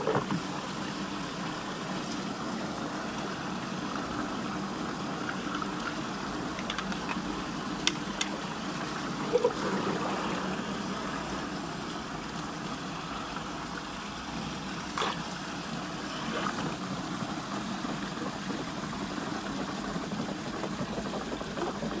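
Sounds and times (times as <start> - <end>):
water swirling down a drain: 0.0 - 22.0
plastic toy clicks and knocks: 6.6 - 7.3.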